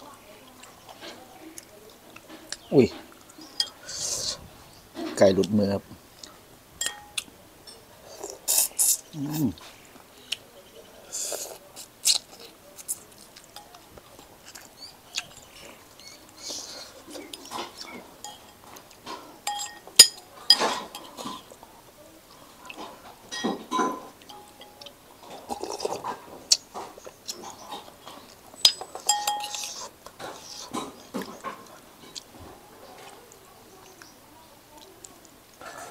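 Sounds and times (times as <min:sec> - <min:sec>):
utensils clinking on ceramic bowl: 0:06.8 - 0:07.8, 0:17.5 - 0:21.5, 0:23.3 - 0:24.8, 0:28.6 - 0:29.9.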